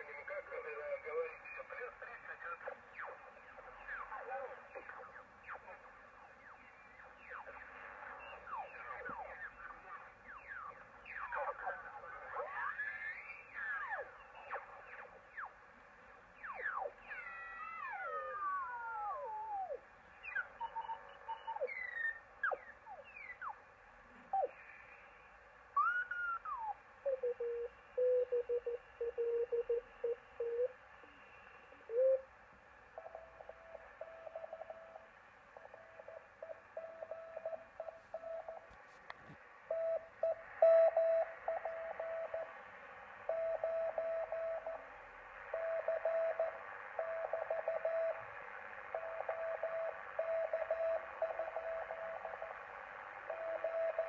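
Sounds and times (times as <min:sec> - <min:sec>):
radio band hiss: 0:00.0 - 0:17.2, 0:18.0 - 0:54.0
morse code tone: 0:33.0 - 0:38.8, 0:39.7 - 0:42.6, 0:43.3 - 0:44.8, 0:45.5 - 0:48.2, 0:49.0 - 0:52.6, 0:53.3 - 0:54.0.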